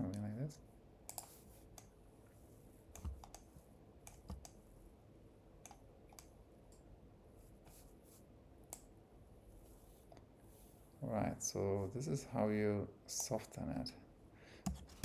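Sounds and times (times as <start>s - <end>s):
keyboard and mouse clicks: 1.1s - 1.9s, 2.9s - 4.6s, 5.6s - 6.8s, 14.6s - 15.0s.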